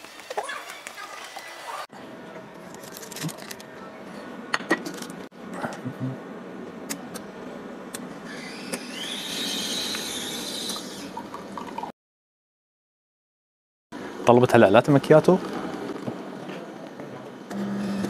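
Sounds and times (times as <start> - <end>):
coffee machine motor whine: 8.2 - 11.2, 17.4 - 18.0.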